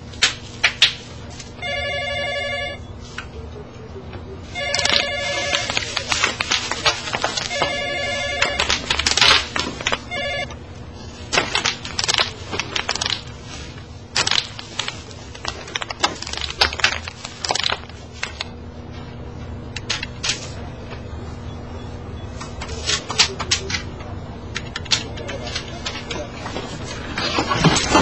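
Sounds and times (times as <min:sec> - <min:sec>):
telephone ringing: 0:01.6 - 0:02.9, 0:04.5 - 0:06.2, 0:06.8 - 0:10.6
bubble wrap popping: 0:04.7 - 0:07.8, 0:08.4 - 0:10.1, 0:11.3 - 0:18.5.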